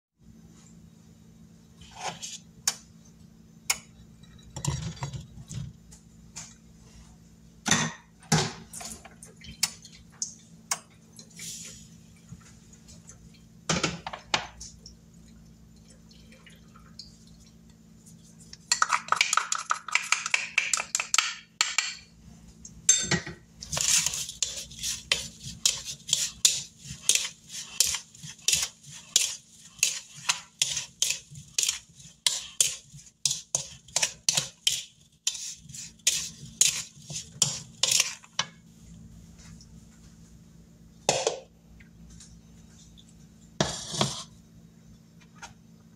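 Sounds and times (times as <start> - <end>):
spoon stirring in plastic bowl: 23.6 - 38.6, 43.6 - 44.4.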